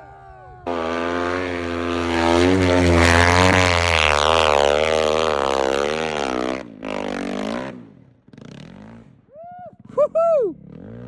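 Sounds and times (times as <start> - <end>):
high whooping call: 0.0 - 1.4
snow bike engine revving: 0.0 - 11.0.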